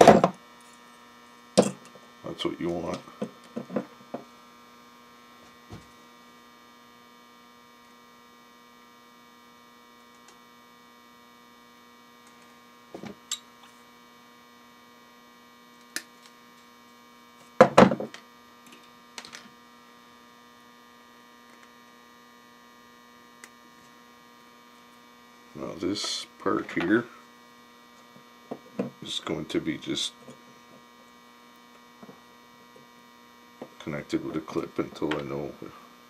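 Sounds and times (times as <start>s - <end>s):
electrical mains hum: 0.0s - 36.0s.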